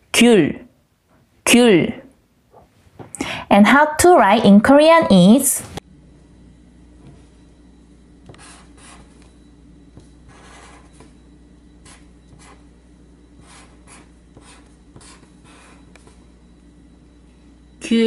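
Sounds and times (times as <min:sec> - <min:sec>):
pen scratching on paper: 0:08.3 - 0:09.3, 0:10.3 - 0:11.1, 0:11.8 - 0:12.7, 0:13.4 - 0:16.2.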